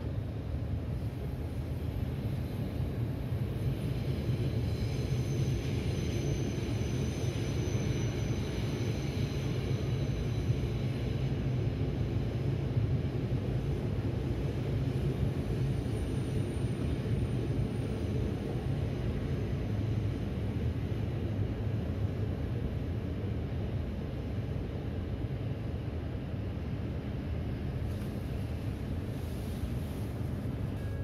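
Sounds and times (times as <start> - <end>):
faint high whine: 0.0 - 31.0
train rumbling past: 0.0 - 31.0.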